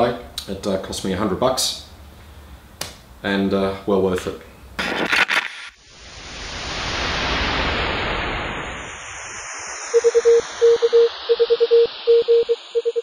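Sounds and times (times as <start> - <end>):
rushing whoosh: 5.8 - 11.3
morse code beeps: 10.0 - 13.0.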